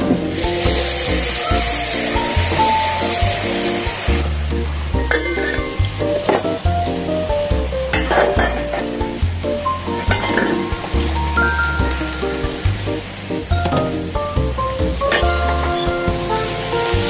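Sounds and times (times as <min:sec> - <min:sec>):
music with repeating bass line: 0:00.0 - 0:17.0
pots and utensils clattering: 0:05.0 - 0:06.7, 0:07.9 - 0:12.9, 0:13.6 - 0:14.0, 0:15.0 - 0:16.7.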